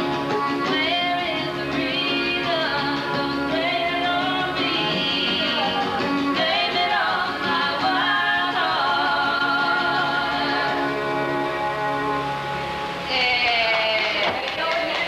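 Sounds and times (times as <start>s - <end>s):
instrumental music: 0.0s - 13.4s
woman singing long notes: 0.5s - 11.6s.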